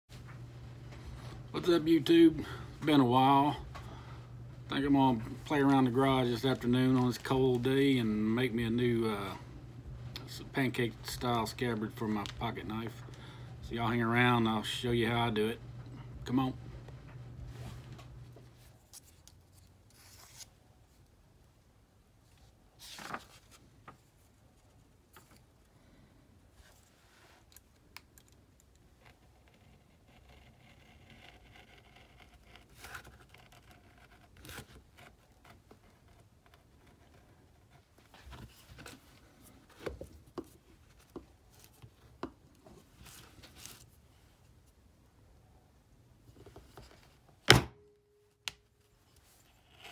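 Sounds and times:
paper rustling: 0:05.1 - 0:08.0, 0:17.5 - 0:20.6, 0:22.4 - 0:25.4, 0:42.7 - 0:44.3.

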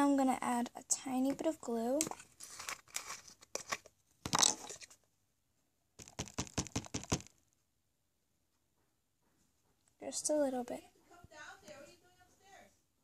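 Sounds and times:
crinkly rustling: 0:02.1 - 0:05.0.

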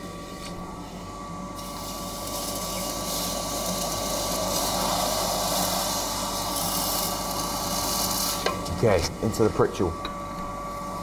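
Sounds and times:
blower fan rushing hum: 0:00.0 - 0:11.0.

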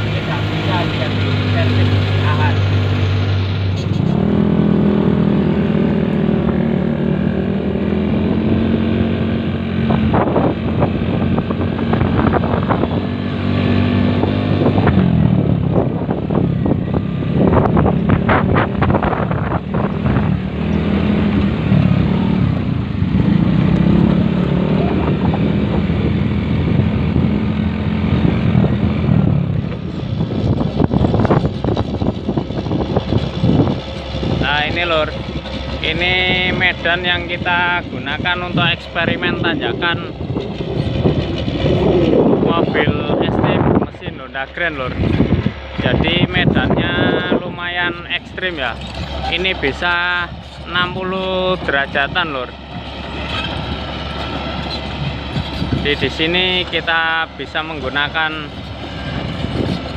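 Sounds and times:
small motorcycle engine revving: 0:00.0 - 0:36.8.

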